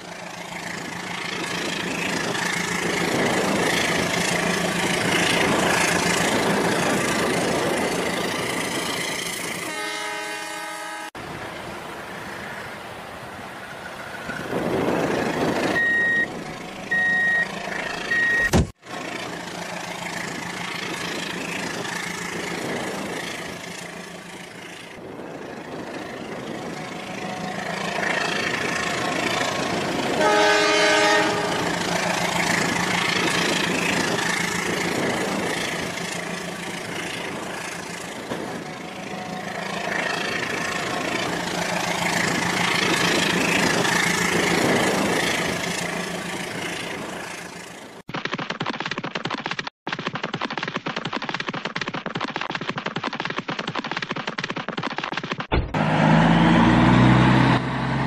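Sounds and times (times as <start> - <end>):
short electronic beeps: 15.7 - 16.3, 16.9 - 18.7.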